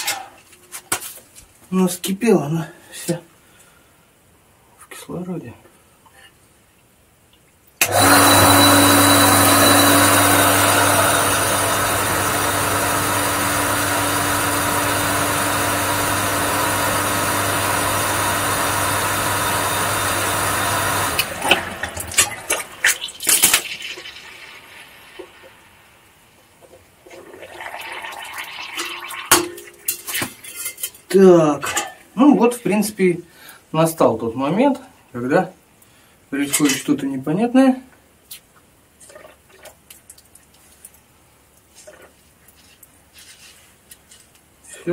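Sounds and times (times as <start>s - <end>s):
pump motor hum: 7.8s - 23.6s.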